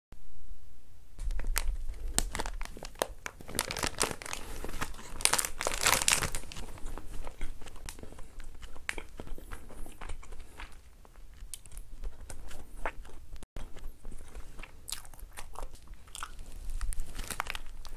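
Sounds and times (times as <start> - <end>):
plastic wrapper crinkling and tearing: 1.2 - 9.2, 14.2 - 17.9
biting and chewing bread: 1.2 - 17.9.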